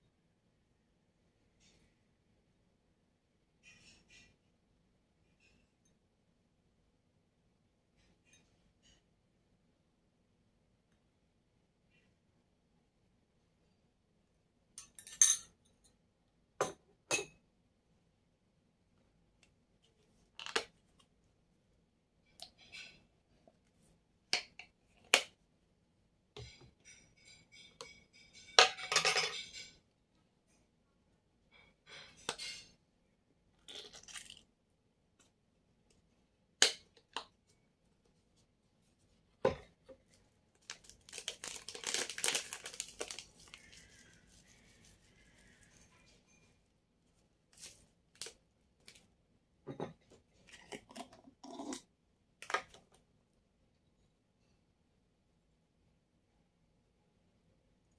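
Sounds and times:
glass and metal clinking: 0:14.8 - 0:15.6, 0:26.4 - 0:29.8
rustling: 0:40.0 - 0:49.1
plastic packet crinkling: 0:40.5 - 0:44.8.

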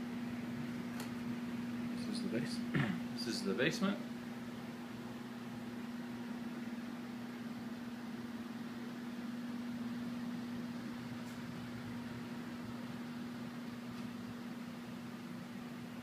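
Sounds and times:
furnace and air conditioning hum: 0:00.0 - 0:16.0.

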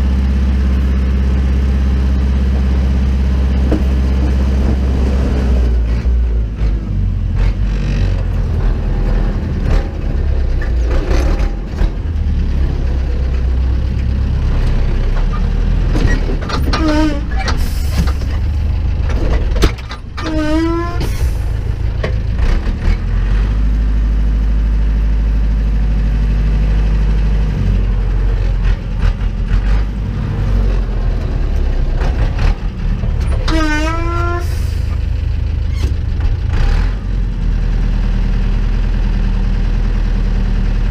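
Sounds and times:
tractor diesel engine running: 0:00.0 - 0:40.9
short squeals: 0:16.1 - 0:18.0, 0:20.2 - 0:21.4.

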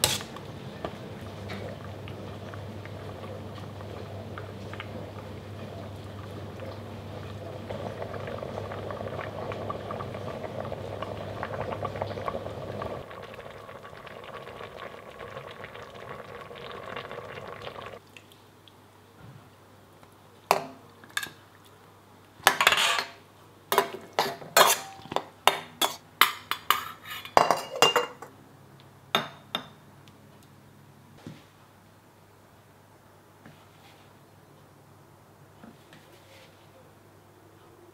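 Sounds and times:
pot bubbling at a simmer: 0:00.0 - 0:18.8.

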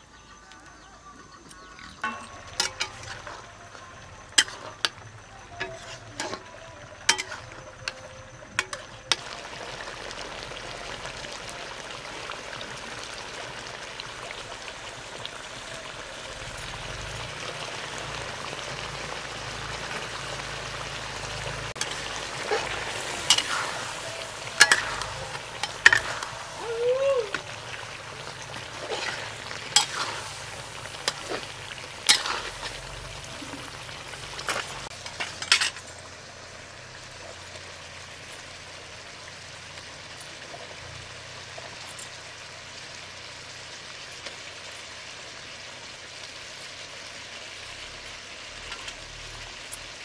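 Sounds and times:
food sizzling in oil: 0:01.6 - 0:50.0
spatula scraping pan: 0:05.5 - 0:07.7, 0:27.3 - 0:35.8.

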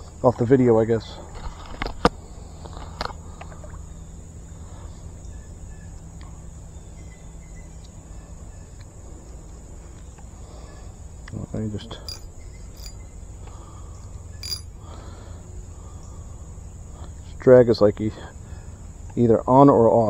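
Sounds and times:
high-pitched insect drone: 0:11.6 - 0:13.3, 0:14.3 - 0:15.6.

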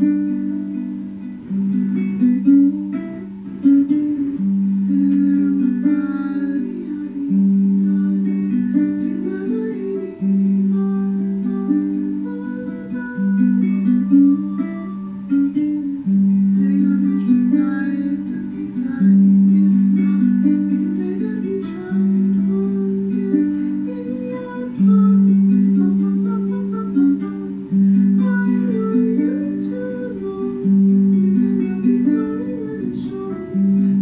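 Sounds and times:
plucked guitar notes: 0:00.0 - 0:34.0.

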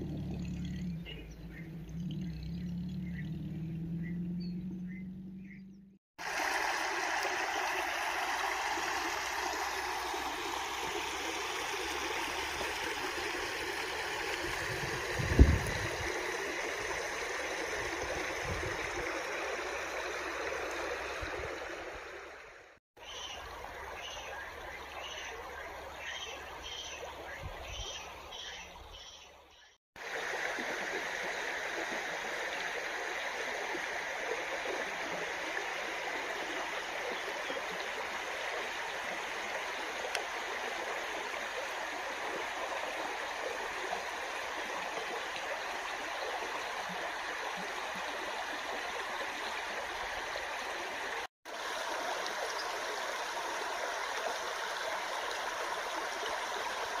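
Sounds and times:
river running over pebbles: 0:06.2 - 0:27.2, 0:30.0 - 0:57.0.

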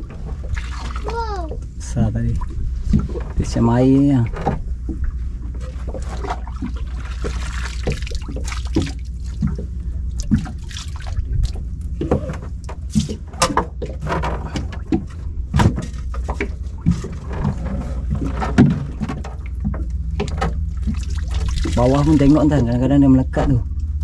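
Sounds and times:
water splashing and dripping: 0:00.0 - 0:01.6, 0:04.8 - 0:11.8, 0:18.1 - 0:22.6
steady low rumble: 0:00.0 - 0:24.0.

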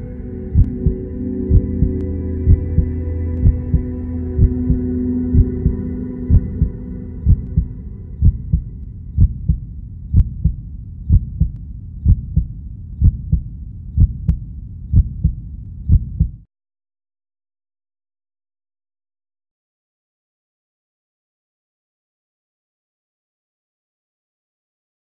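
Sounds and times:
droning chord: 0:00.0 - 0:09.1
heartbeat thumps: 0:00.5 - 0:16.5.

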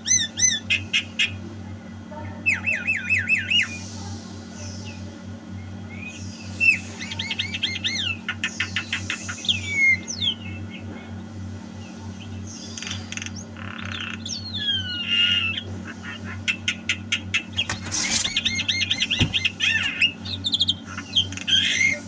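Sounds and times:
steady low hum: 0:00.0 - 0:22.0
myna bird calling: 0:12.4 - 0:22.0.

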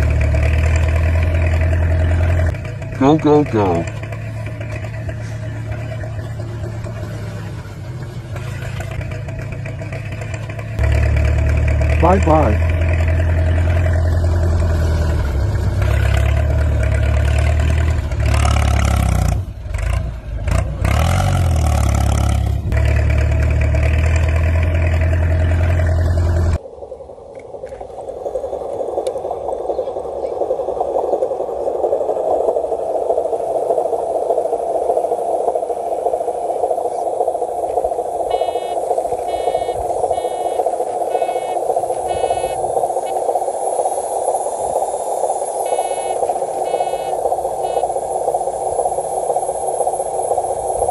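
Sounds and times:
electric motor and gears whining: 0:00.0 - 0:26.6, 0:37.8 - 0:50.9
simulated tractor engine hum: 0:00.0 - 0:50.9
short beeps: 0:38.3 - 0:42.7.

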